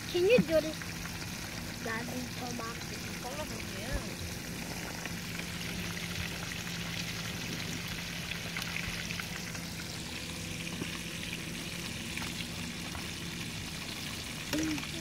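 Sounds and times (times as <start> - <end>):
fish frying in hot oil: 0.0 - 15.0
low hum: 0.0 - 15.0.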